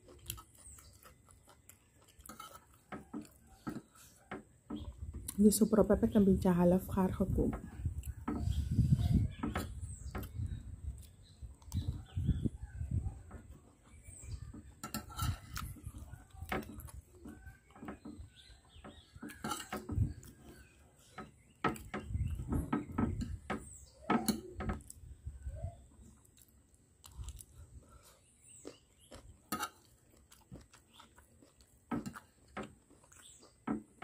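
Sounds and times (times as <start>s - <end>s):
cutlery clinking on china plate: 14.8s - 15.5s, 19.3s - 19.9s.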